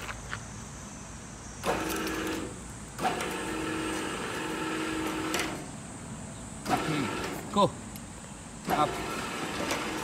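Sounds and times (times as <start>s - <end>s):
electric motor humming: 8.6s - 10.0s.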